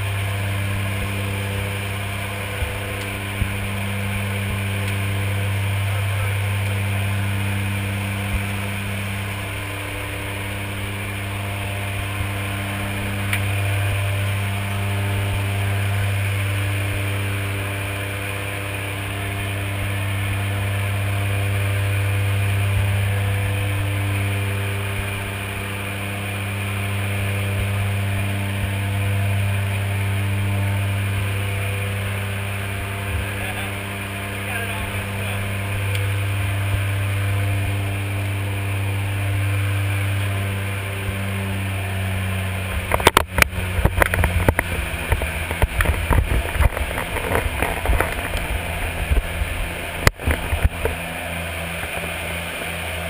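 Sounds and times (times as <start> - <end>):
airplane engine drone: 0.0 - 53.0.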